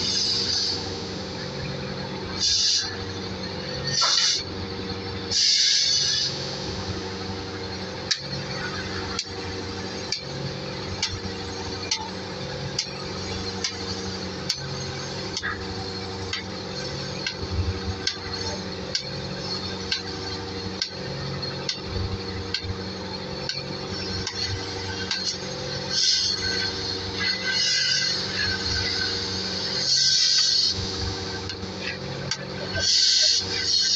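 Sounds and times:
machine humming: 0:00.0 - 0:33.9
sharp metallic tick: 0:09.1 - 0:09.4, 0:11.0 - 0:12.1, 0:13.6 - 0:13.8, 0:14.4 - 0:14.7, 0:16.3 - 0:16.5, 0:17.2 - 0:19.2, 0:19.9 - 0:20.1, 0:20.8 - 0:21.0, 0:21.6 - 0:21.9, 0:22.5 - 0:22.8, 0:23.4 - 0:25.4.

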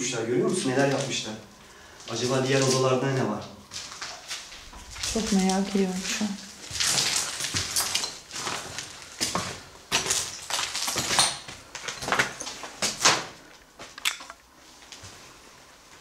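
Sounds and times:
footsteps scuffing on gritty floor: 0:02.1 - 0:14.0.

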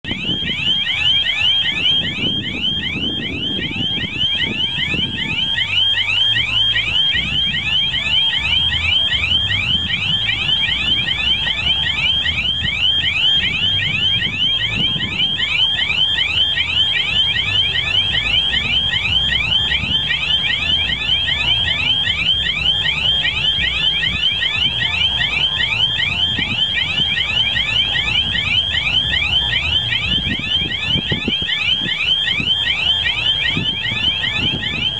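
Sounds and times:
rapid electronic warning beeps: 0:00.0 - 0:34.9.

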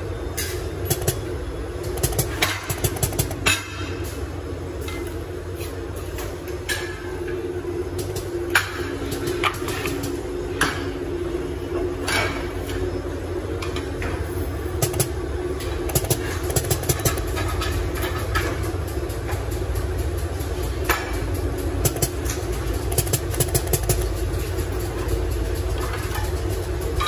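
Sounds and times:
factory machinery humming: 0:00.0 - 0:27.0
sharp clicks and knocks: 0:00.4 - 0:03.9, 0:13.6 - 0:27.0.

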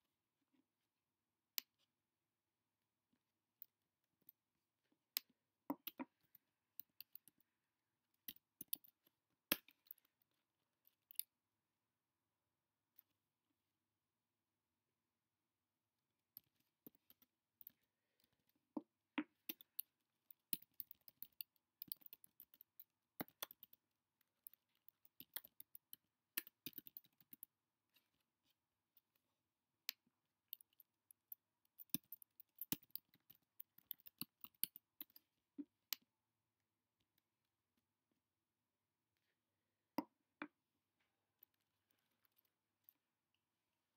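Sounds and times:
faint keyboard typing: 0:19.4 - 0:28.1, 0:30.5 - 0:35.3.

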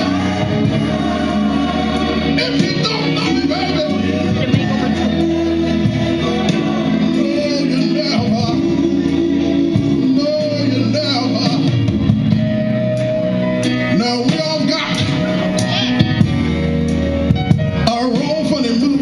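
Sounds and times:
man singing soul: 0:00.0 - 0:12.0, 0:13.7 - 0:16.1, 0:17.8 - 0:19.0
backing music with bass line: 0:00.0 - 0:19.0.

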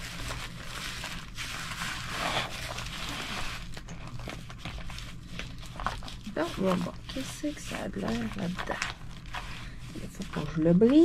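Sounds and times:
plastic sleeve crinkling: 0:00.0 - 0:11.0.

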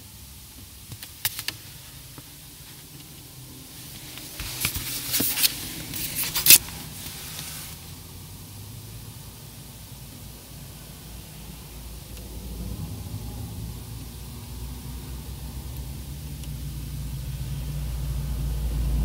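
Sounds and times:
steady hiss: 0:00.0 - 0:19.0
plastic bag crinkling: 0:04.2 - 0:07.4.

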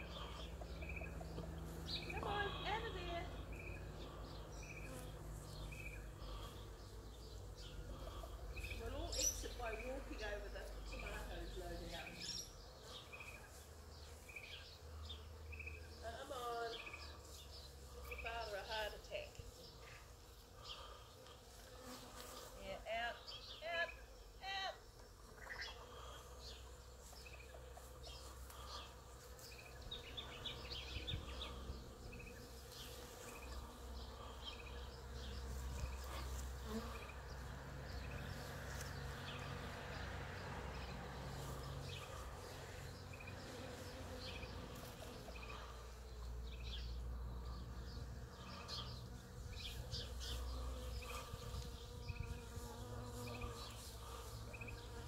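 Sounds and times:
bees buzzing: 0:00.0 - 0:55.0.

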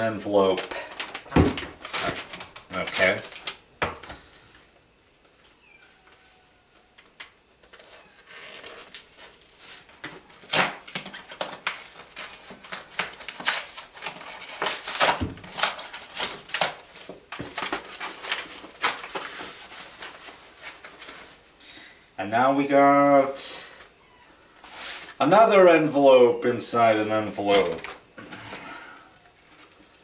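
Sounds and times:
paper envelopes tearing: 0:00.6 - 0:03.6, 0:07.8 - 0:21.2.

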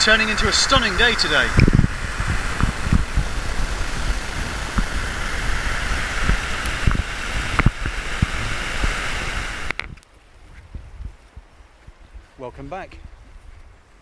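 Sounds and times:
river water over rapids: 0:00.0 - 0:09.8
wind buffeting microphone: 0:00.0 - 0:14.0.

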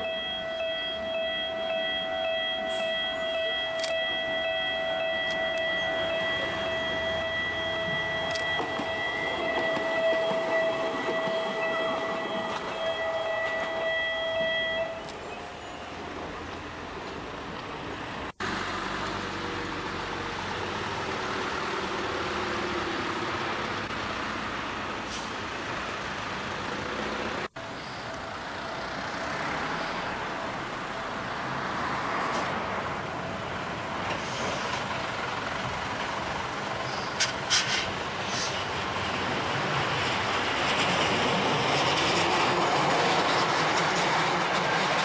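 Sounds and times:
road traffic noise: 0:00.0 - 0:45.0
electric train clicks: 0:07.6 - 0:15.3, 0:39.8 - 0:45.0.

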